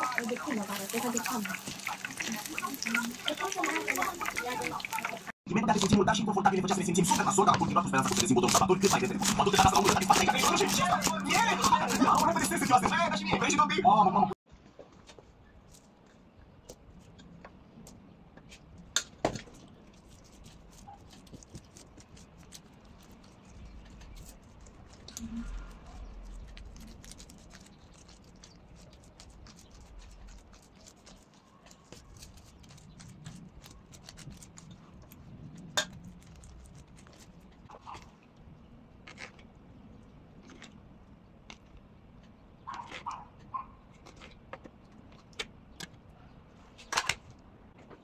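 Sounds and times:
fingers patting sticky rice: 0:07.1 - 0:13.1, 0:19.9 - 0:38.0.

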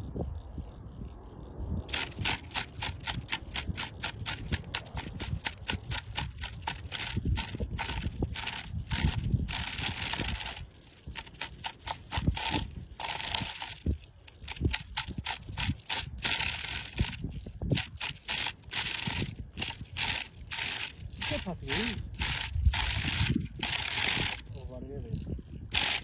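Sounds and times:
scratchy rubbing noise: 0:01.9 - 0:24.6, 0:25.7 - 0:26.0.

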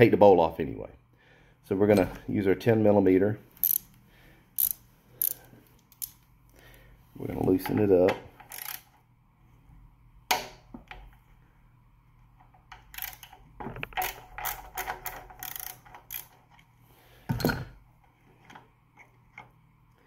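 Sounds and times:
wrench metal clicks: 0:03.6 - 0:04.0, 0:04.6 - 0:06.2, 0:07.6 - 0:09.0, 0:12.7 - 0:16.6.

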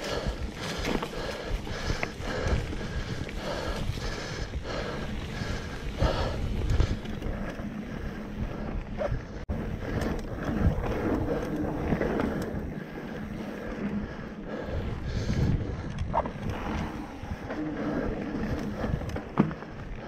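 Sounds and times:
mountain bike rattling on dirt trail: 0:00.0 - 0:20.0
wind buffeting microphone: 0:00.0 - 0:20.0.

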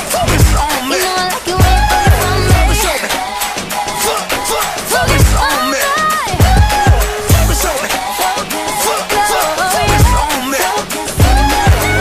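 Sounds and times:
dance music over loudspeakers: 0:00.0 - 0:12.0.

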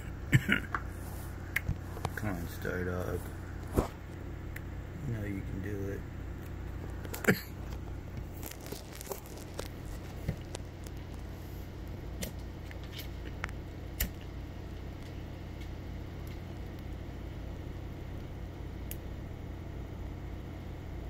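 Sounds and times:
steady low hum: 0:00.0 - 0:21.0
light clicks and crackles: 0:06.4 - 0:14.3, 0:14.9 - 0:17.0.

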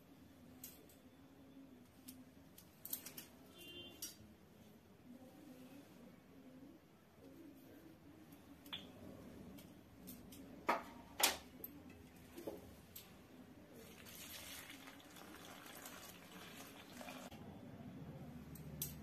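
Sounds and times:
water pouring into steel bowl: 0:13.8 - 0:17.3.

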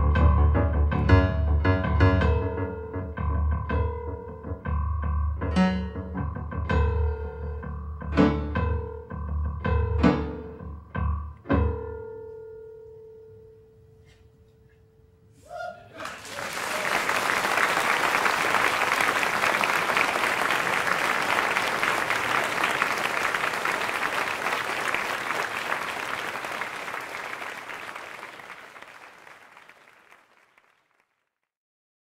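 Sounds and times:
audience applauding: 0:16.0 - 0:31.2.

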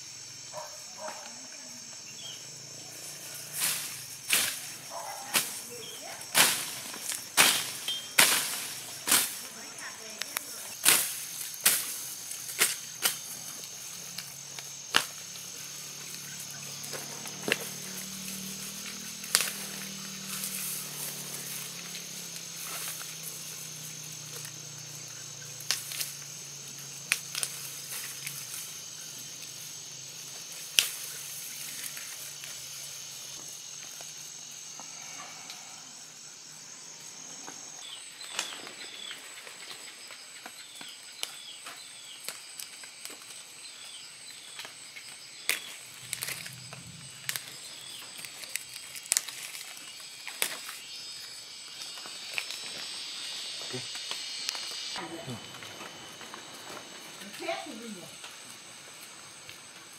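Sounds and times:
high-pitched insect chorus: 0:00.0 - 0:59.9
stalks snapping and rustling: 0:03.4 - 0:34.3, 0:38.3 - 0:38.8, 0:44.4 - 0:53.0.

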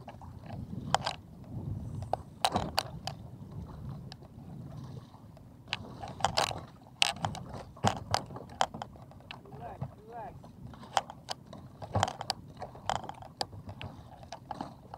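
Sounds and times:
low steady rumble: 0:00.0 - 0:10.8
sharp knocks and clicks: 0:02.0 - 0:03.2, 0:05.7 - 0:09.9, 0:10.8 - 0:14.9.

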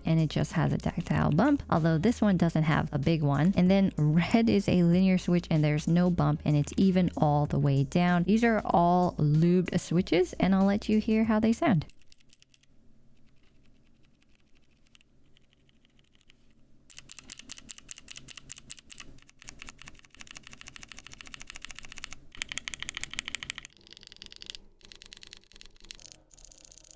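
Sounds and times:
mechanical keyboard key clacks: 0:16.9 - 0:26.9.

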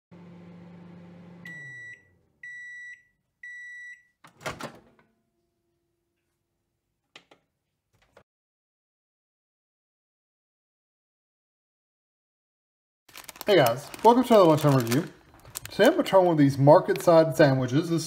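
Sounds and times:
microwave oven humming: 0:00.1 - 0:02.8
microwave long beeps: 0:00.3 - 0:04.2.

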